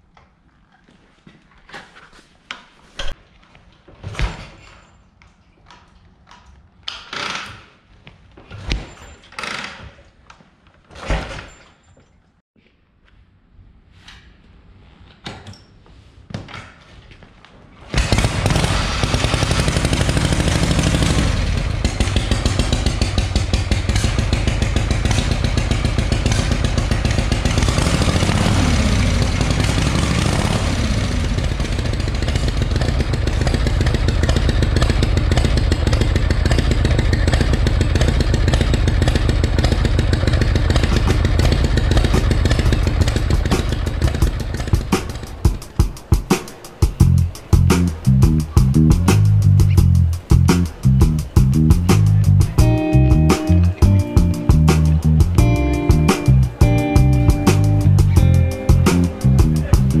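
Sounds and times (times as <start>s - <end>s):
motorcycle engine idling loudly: 18.0s - 45.3s
motorcycle engine knocks: 31.4s - 47.7s.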